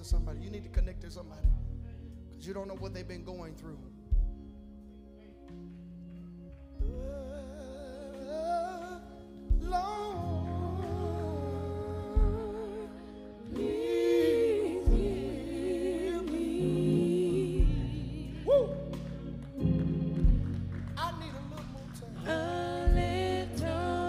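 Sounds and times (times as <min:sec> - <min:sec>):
sustained low instrumental chords: 0:00.0 - 0:24.0
women singing gospel: 0:06.8 - 0:20.4, 0:22.0 - 0:24.0.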